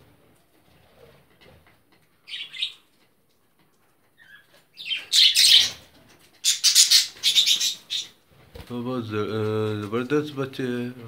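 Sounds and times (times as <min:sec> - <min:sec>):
budgerigar chirp: 0:04.8 - 0:05.8, 0:06.4 - 0:08.1
budgerigar harsh squawking: 0:06.4 - 0:08.1.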